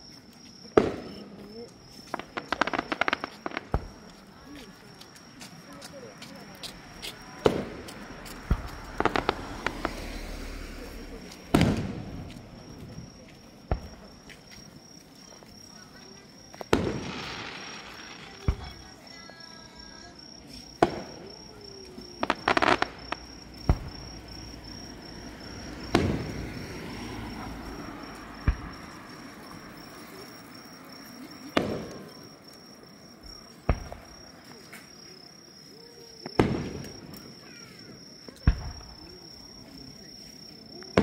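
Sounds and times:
crickets chirping: 0.0s - 41.0s
fireworks crackling: 0.7s - 30.3s, 31.0s - 35.0s, 35.7s - 40.0s
fireworks bangs: 0.8s - 4.2s, 6.8s - 14.5s, 15.8s - 19.2s, 20.6s - 30.2s, 31.4s - 32.4s, 33.2s - 34.7s, 36.2s - 39.3s.

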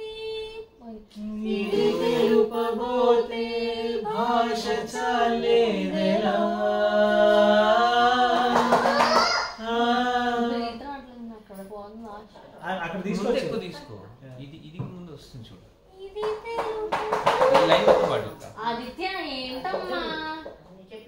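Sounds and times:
voices singing together: 0.0s - 11.3s.

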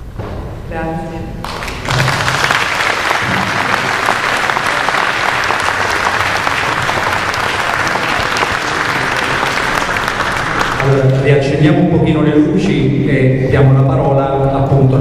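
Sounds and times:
audience applauding: 1.4s - 11.3s.

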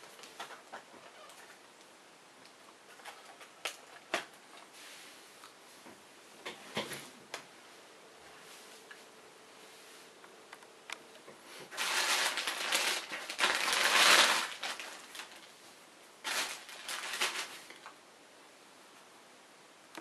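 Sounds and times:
plastic wrapping crinkling: 11.6s - 15.6s, 16.2s - 18.0s.

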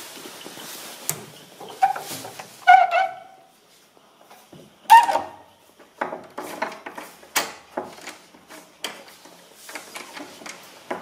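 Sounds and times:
knocks and clatters: 5.8s - 11.0s.

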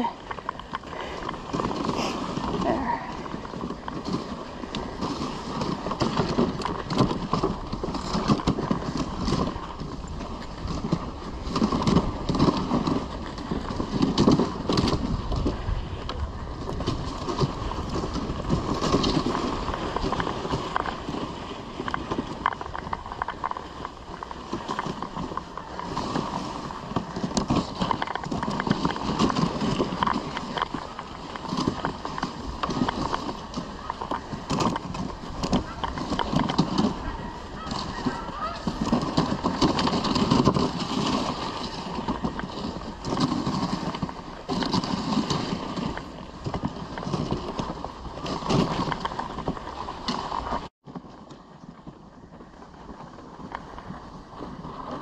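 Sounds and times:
sled knocks and rattles: 0.0s - 55.0s
sled runners scraping on snow: 0.0s - 55.0s.

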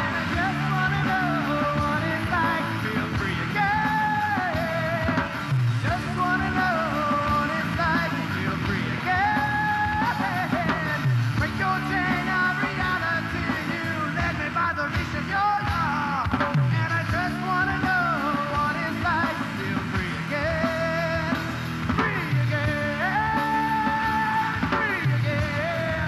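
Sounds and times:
bass guitar: 0.0s - 26.0s
drums: 0.0s - 26.0s
electric guitar lead: 0.0s - 26.0s.

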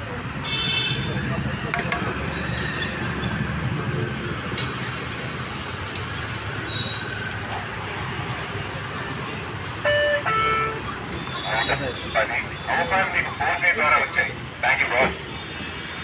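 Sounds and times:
low rumble of passing traffic: 0.0s - 16.0s
gas burner rushing: 3.2s - 9.8s.

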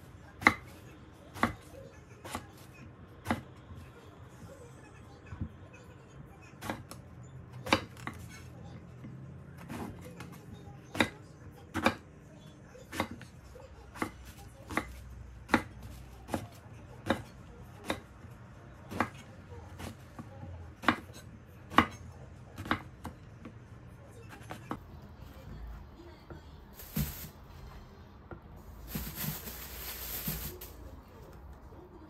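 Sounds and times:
knife chopping on wooden board: 20.8s - 22.0s.

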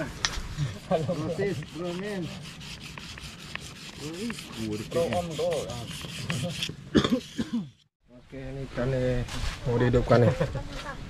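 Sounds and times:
blade scraping on whetstone: 0.7s - 7.4s.

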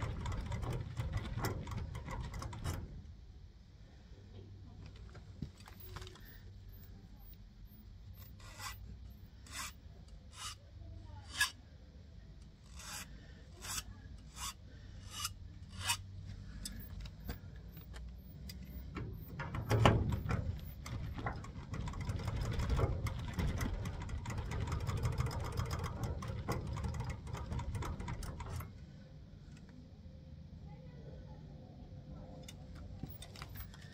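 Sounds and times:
hand file scraping metal key: 6.2s - 10.6s, 11.3s - 11.6s, 12.7s - 16.9s.

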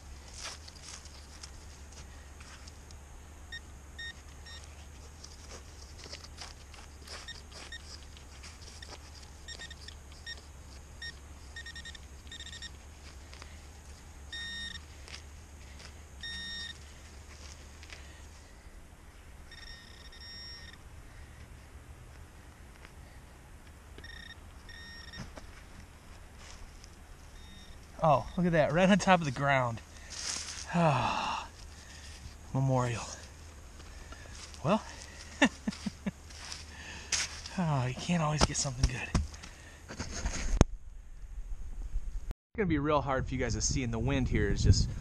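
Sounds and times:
digging in dirt: 0.0s - 40.7s
metal detector beeps: 3.5s - 5.4s, 6.0s - 13.5s, 14.2s - 14.9s, 15.7s - 17.0s, 19.4s - 20.8s, 24.0s - 25.4s, 27.3s - 29.7s
metal detector long tones: 3.5s - 21.8s, 23.6s - 32.4s
wind rumble on microphone: 40.4s - 45.0s.

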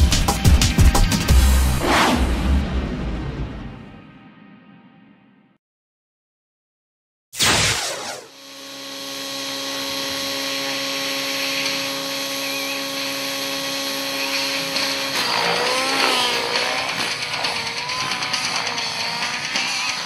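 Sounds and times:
model helicopter engine and rotor: 7.9s - 20.0s.

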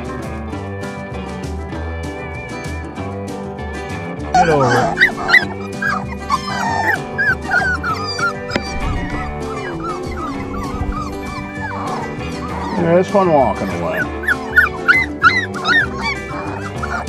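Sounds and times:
background music: 0.0s - 17.0s
puppies whimpering and yipping: 4.4s - 17.0s.

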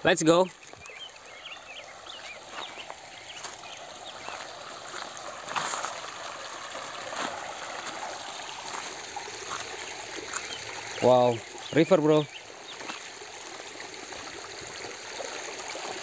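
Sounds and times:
stream trickling over stones: 0.0s - 16.0s
footsteps on gravel: 2.2s - 6.2s, 7.1s - 10.6s, 12.7s - 13.1s.

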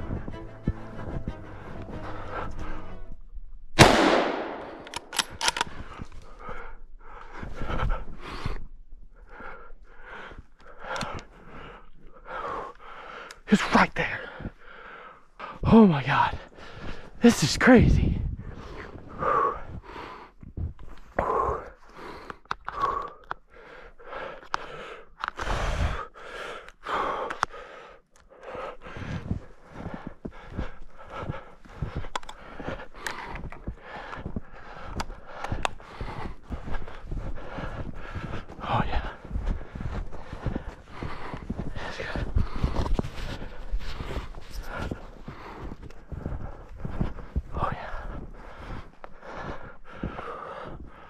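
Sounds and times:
quick heavy breaths: 0.0s - 3.2s, 3.8s - 51.0s
rifle shot echoing: 3.8s - 5.5s
sharp clicks: 3.8s - 5.8s
light clicks: 10.6s - 11.4s, 32.0s - 34.2s.

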